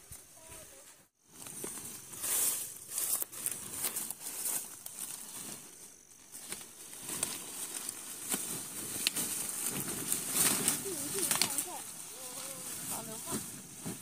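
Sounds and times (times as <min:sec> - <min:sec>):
dry corn leaves rustling: 0:00.0 - 0:14.0
stalks snapping: 0:09.0 - 0:09.2, 0:10.4 - 0:11.7.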